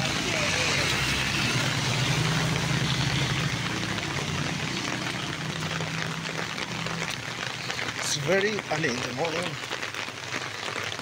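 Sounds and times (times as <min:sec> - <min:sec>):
vehicle engine running: 0:00.0 - 0:08.0
traffic hiss: 0:00.0 - 0:11.0
water noise: 0:00.0 - 0:11.0.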